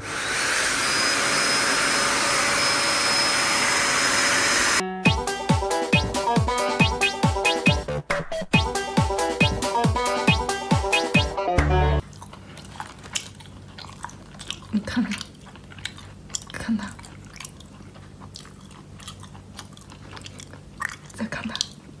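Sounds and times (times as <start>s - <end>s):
fried chicken crunching: 12.0s - 22.0s.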